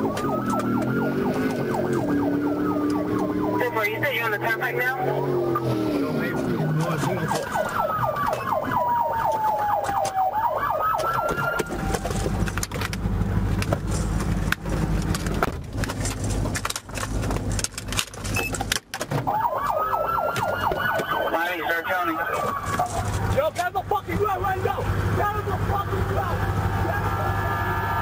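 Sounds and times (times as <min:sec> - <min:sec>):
police siren wailing: 0:00.0 - 0:12.7, 0:19.2 - 0:23.5, 0:24.3 - 0:28.0
knocks and clicks: 0:00.1 - 0:03.3, 0:06.7 - 0:13.0, 0:20.2 - 0:21.2.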